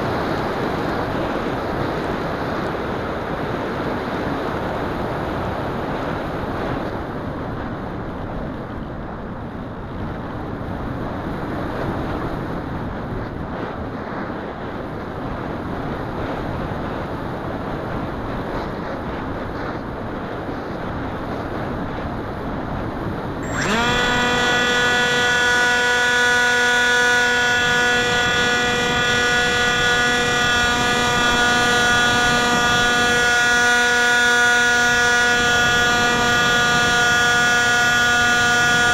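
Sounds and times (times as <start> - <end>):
electric motor and propeller whine: 0.0 - 7.0, 19.6 - 38.9
airflow rushing over camera: 22.8 - 38.9.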